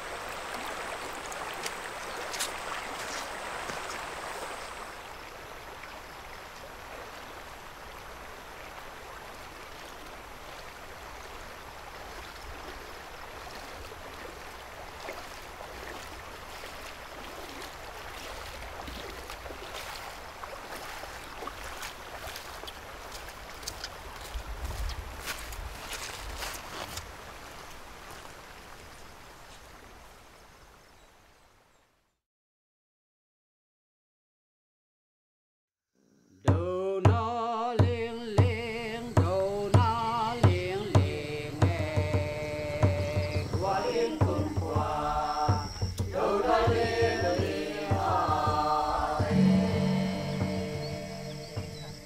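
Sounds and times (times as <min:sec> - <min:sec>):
shallow stream running: 0:00.0 - 0:32.1, 0:37.0 - 0:52.0
footsteps: 0:01.2 - 0:04.8, 0:13.4 - 0:28.2.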